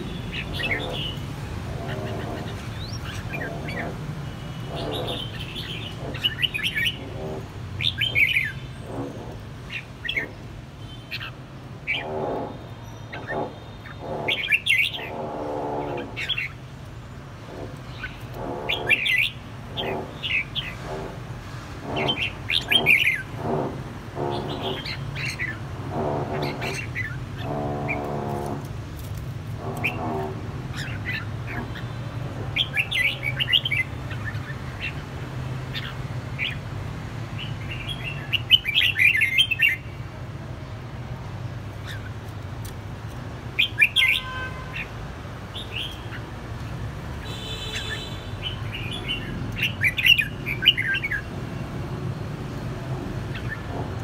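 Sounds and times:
bulbuls calling and singing: 0.0s - 16.7s, 17.5s - 21.2s, 21.8s - 36.7s, 47.3s - 51.3s, 53.2s - 54.0s.

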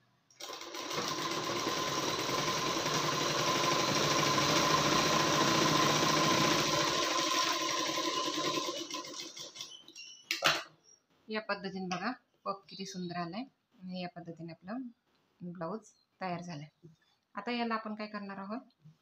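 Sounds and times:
sewing machine stitching: 0.4s - 10.0s.

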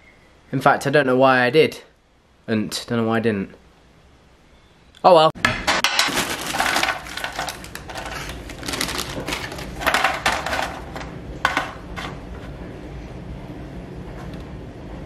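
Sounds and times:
fries clattering onto baking tray: 5.7s - 12.2s
single pieces knocking on tray: 9.6s - 12.1s.

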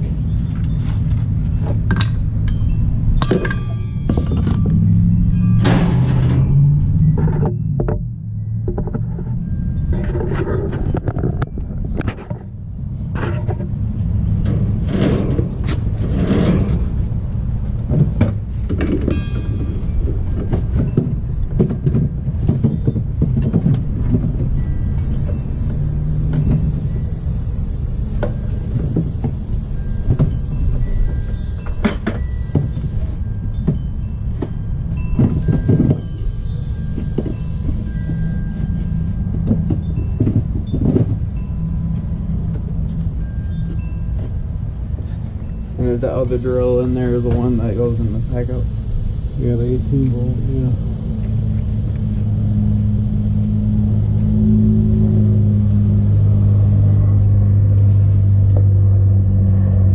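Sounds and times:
steady hiss: 25.0s - 33.2s, 45.8s - 57.0s.

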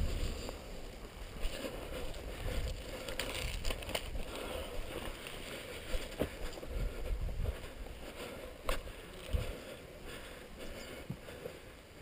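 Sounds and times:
wind buffeting microphone: 0.0s - 5.1s, 5.9s - 9.7s.

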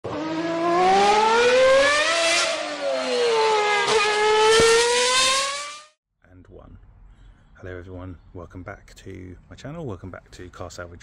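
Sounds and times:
car engine accelerating: 0.0s - 5.9s.

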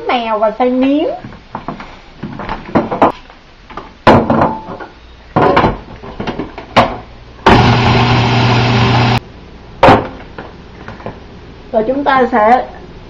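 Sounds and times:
plastic clunks and knocks: 1.6s - 3.2s
food processor motor: 7.5s - 9.2s.

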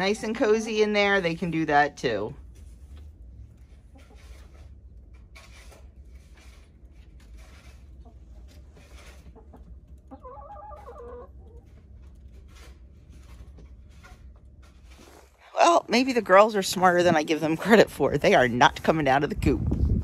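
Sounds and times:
hens clucking: 3.7s - 4.5s, 7.8s - 12.2s.

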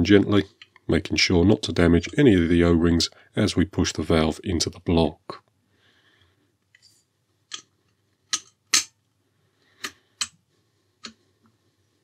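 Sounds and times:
metal clicks and taps: 7.5s - 7.7s.

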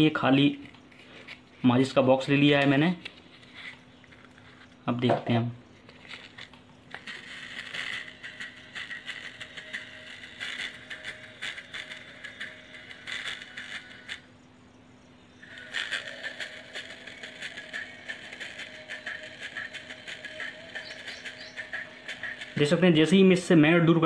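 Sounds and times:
song from tiny speaker: 15.4s - 22.8s.

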